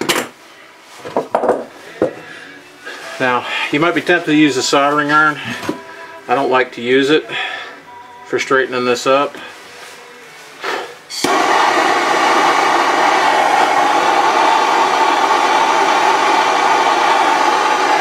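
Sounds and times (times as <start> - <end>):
torch flame hissing: 11.1 - 18.0
gas torch ignition click: 11.2 - 11.6.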